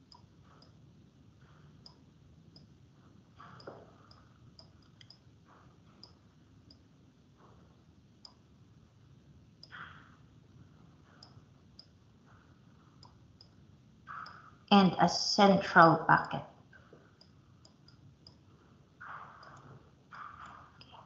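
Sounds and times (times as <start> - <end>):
faint small clicks: 4.1 - 5.2.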